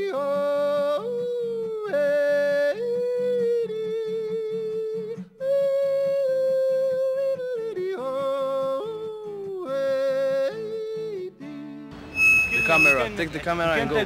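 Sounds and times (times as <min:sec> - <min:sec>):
person singing sliding notes: 0:11.5 - 0:13.3.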